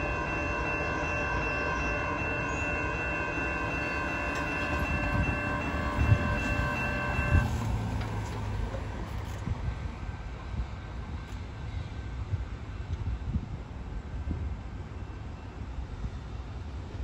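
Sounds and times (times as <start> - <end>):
crossing warning bell ringing: 0.0 - 9.0
train rumbling: 0.0 - 17.0.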